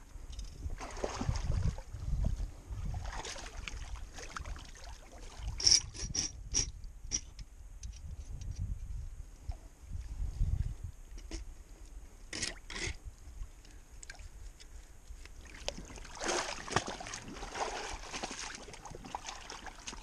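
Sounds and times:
water sloshing: 0:00.6 - 0:05.8, 0:15.4 - 0:20.0.

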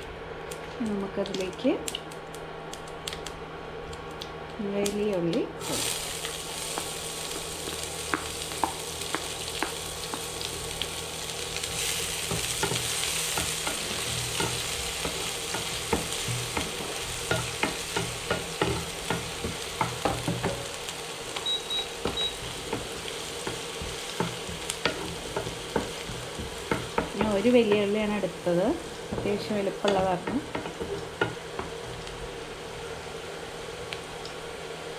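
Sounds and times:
onion sizzling in oil: 0:04.8 - 0:34.9
spatula tapping and scraping pan: 0:12.2 - 0:28.1, 0:29.1 - 0:32.1.

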